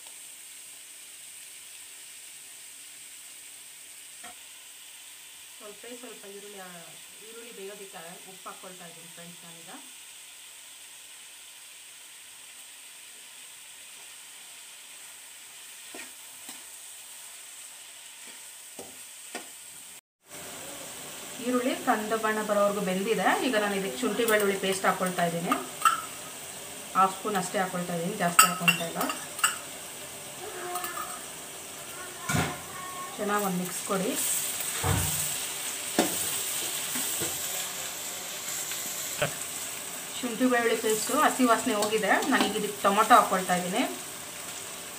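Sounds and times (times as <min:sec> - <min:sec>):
onions sizzling in oil: 0:00.0 - 0:44.9
spatula scraping a pan: 0:15.8 - 0:16.8, 0:18.2 - 0:19.5
metal spatula scraping a pan: 0:15.9 - 0:16.8.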